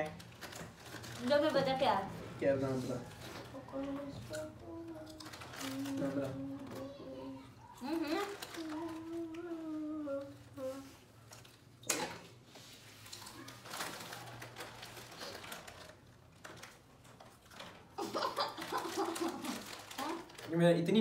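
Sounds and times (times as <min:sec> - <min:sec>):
snack packets rustling: 0:00.0 - 0:01.8, 0:03.0 - 0:11.8, 0:12.8 - 0:21.0
person humming: 0:04.3 - 0:11.0.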